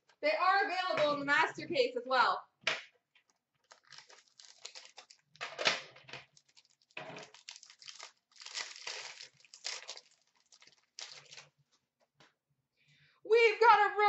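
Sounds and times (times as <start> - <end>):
wrapper crinkling and tearing: 3.6 - 11.6.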